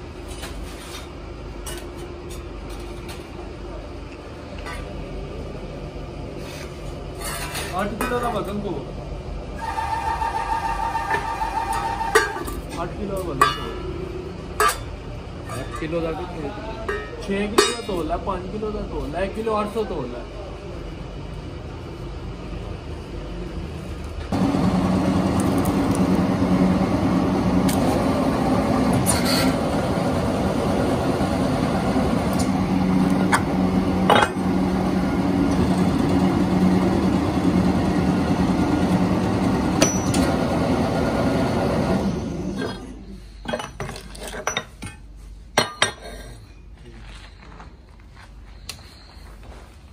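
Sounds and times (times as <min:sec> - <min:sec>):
steady machine hum: 0:07.8 - 0:43.8.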